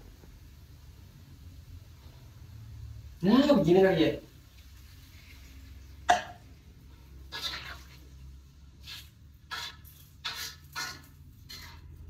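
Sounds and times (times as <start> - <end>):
spatula scraping a pan: 6.9 - 12.0.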